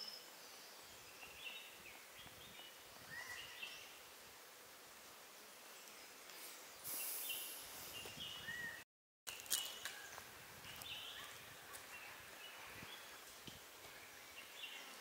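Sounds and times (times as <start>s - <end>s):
steady hiss: 0.1s - 8.6s.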